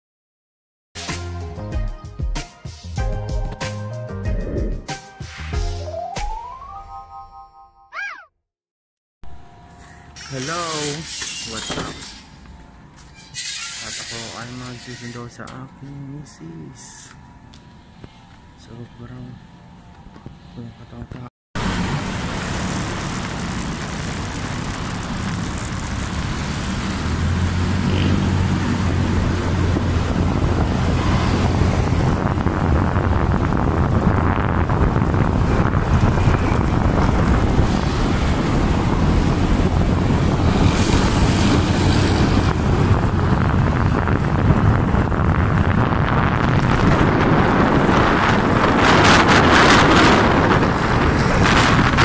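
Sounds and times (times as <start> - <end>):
wind rushing over microphone: 4.3 - 4.8, 21.8 - 52.0
scooter engine running: 21.7 - 32.0.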